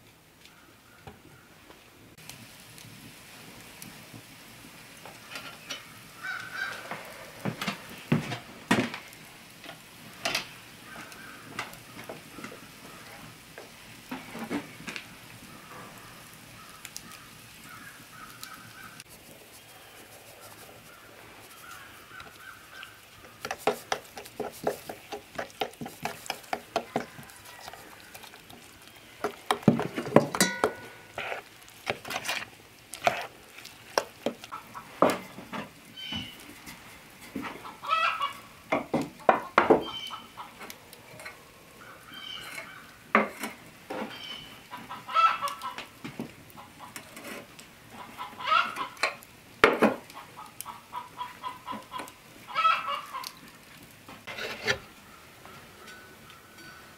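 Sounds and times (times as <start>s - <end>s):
chickens clucking: 34.0s - 43.3s, 43.9s - 47.2s, 47.9s - 49.2s, 49.9s - 53.4s.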